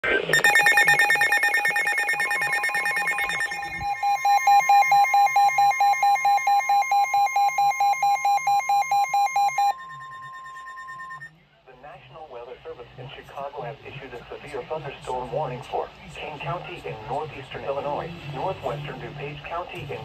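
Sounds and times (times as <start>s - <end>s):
rapid electronic beeping: 0.3s - 11.3s
steady warning alarm tone: 0.3s - 11.3s.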